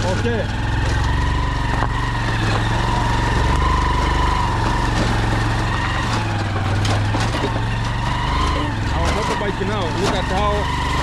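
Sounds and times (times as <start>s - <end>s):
motorcycle engine idling: 0.0s - 10.9s.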